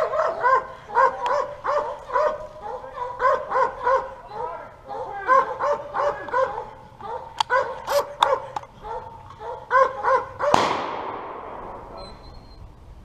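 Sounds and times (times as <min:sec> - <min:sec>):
hunting dogs barking: 0:00.0 - 0:10.7
gunshot echoing: 0:10.4 - 0:12.2.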